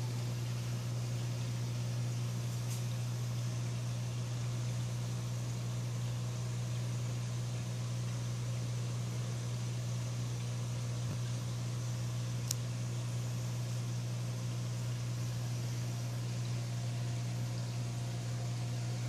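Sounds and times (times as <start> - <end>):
aquarium pumps humming: 0.0 - 19.0.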